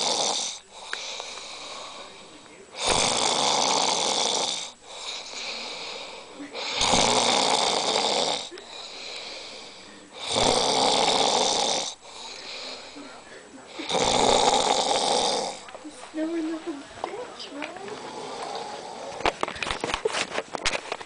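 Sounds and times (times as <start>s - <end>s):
person snoring: 0.0s - 2.2s, 2.8s - 13.0s, 13.7s - 15.7s, 17.9s - 19.3s
quiet breathing: 0.0s - 19.6s.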